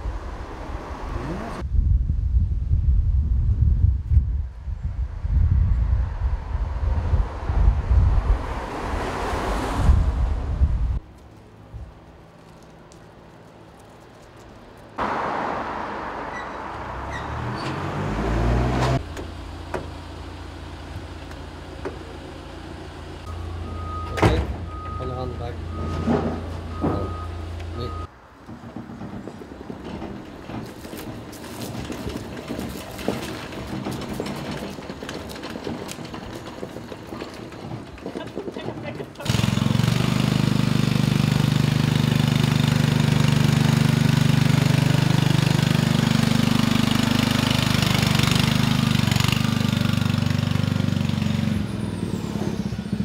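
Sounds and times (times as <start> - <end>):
ticks and crunches: 11.1 - 15.0
small engine revving and idling: 39.2 - 53.0.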